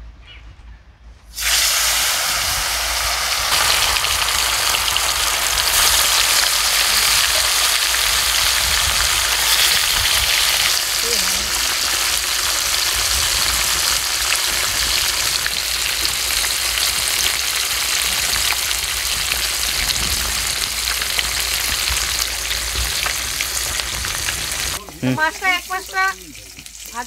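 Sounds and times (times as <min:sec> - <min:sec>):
fish frying in hot oil: 0:01.4 - 0:24.8, 0:25.4 - 0:27.0
oil crackling pops: 0:03.4 - 0:24.8
person speaking: 0:11.0 - 0:11.8, 0:24.8 - 0:27.0.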